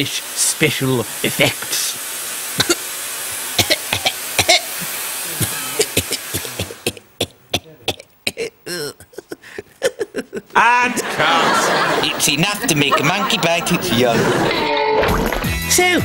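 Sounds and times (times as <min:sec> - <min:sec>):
fog machine hissing: 0:00.0 - 0:07.6, 0:10.0 - 0:14.7
person coughing: 0:02.6 - 0:02.8, 0:03.6 - 0:04.7, 0:05.4 - 0:10.2.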